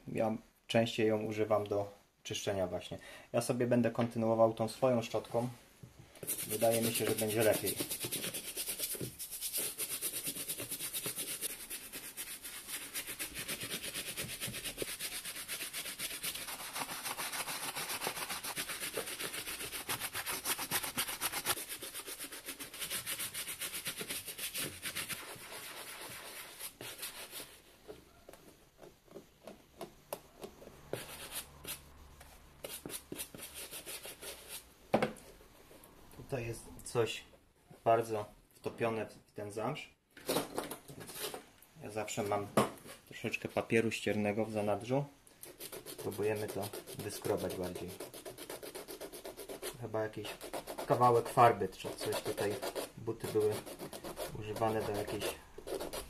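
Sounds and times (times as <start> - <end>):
brush scrubbing wet suede: 6.2 - 27.6, 45.6 - 56.0.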